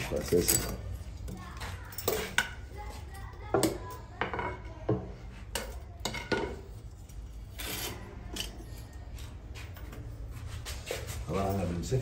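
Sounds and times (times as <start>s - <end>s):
metal tongs clinking on wood: 0.0s - 0.9s.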